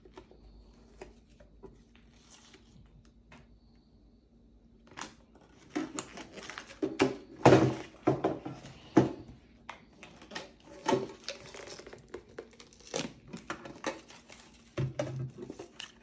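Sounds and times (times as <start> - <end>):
plastic wrapping tearing and crinkling: 10.0 - 14.8.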